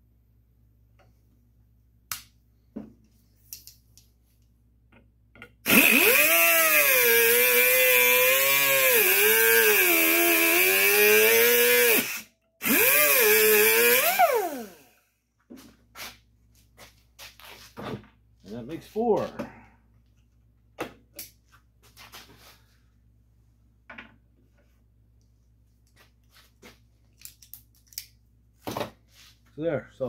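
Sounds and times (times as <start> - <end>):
bench grinder running: 5.7 - 14.9.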